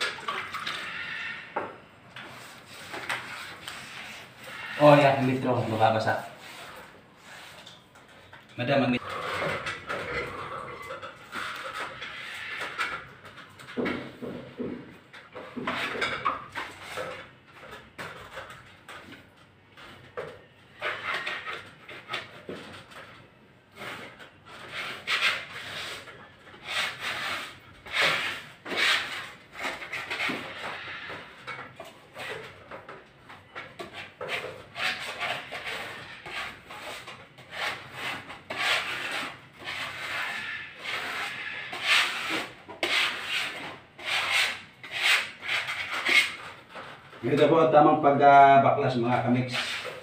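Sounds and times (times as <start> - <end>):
scraper scraping wallpaper: 2.2 - 7.8, 11.2 - 13.0, 20.7 - 47.7, 49.1 - 50.0.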